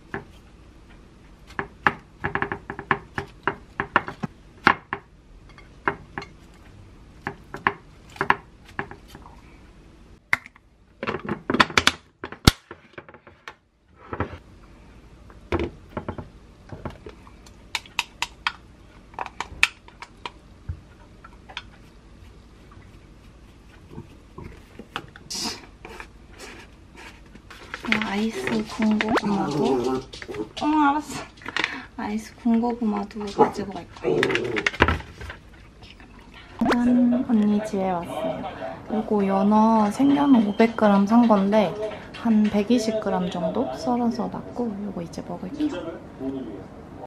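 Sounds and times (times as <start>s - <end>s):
food containers clicking and knocking: 1.5s - 5.1s, 10.4s - 13.4s, 32.5s - 35.4s.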